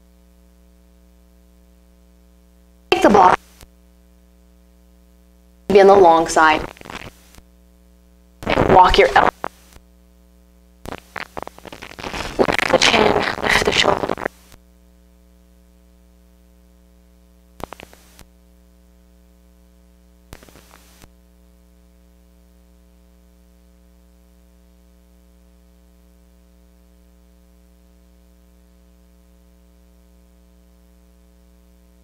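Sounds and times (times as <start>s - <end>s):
electrical mains hum: 0.0s - 32.0s.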